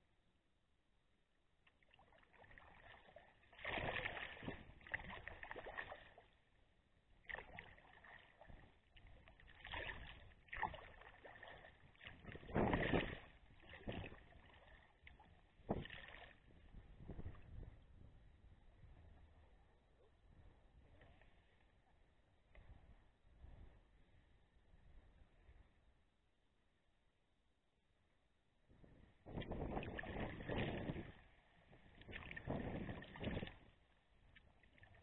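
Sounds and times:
kayak paddle splashing: 0:01.7 - 0:17.6, 0:29.3 - 0:31.2, 0:31.8 - 0:35.0
water washing along hull: 0:02.1 - 0:06.4, 0:07.2 - 0:17.6, 0:31.8 - 0:33.8.

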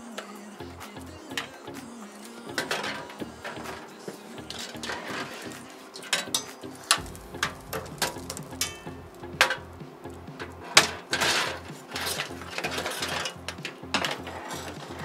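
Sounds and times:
music with steady bass beat: 0:00.6 - 0:03.8, 0:06.9 - 0:15.0.

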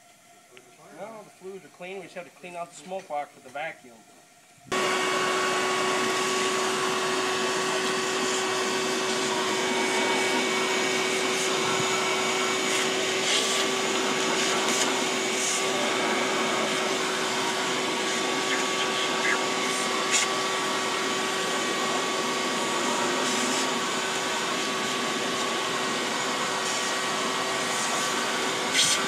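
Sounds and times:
vacuum cleaner running: 0:00.0 - 0:29.0.

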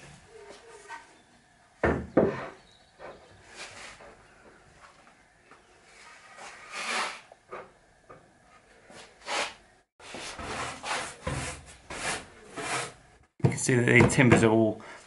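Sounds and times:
wooden boards rubbing and scraping: 0:05.9 - 0:07.3, 0:09.2 - 0:13.0.

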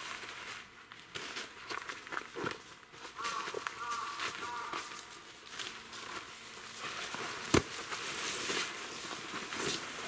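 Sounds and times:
footsteps on dry leaves: 0:00.0 - 0:10.0
tent fabric rustling: 0:06.0 - 0:10.0.

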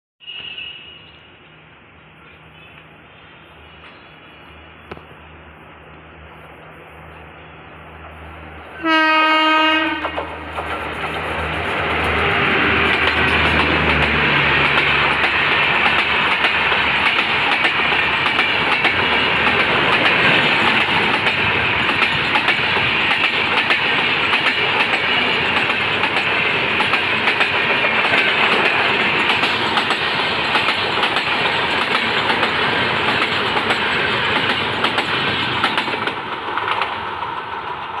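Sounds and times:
electric locomotive hum: 0:00.4 - 0:38.0
train wheels rushing on rails: 0:02.2 - 0:38.0
wheels clicking on rail joints: 0:09.9 - 0:38.0.

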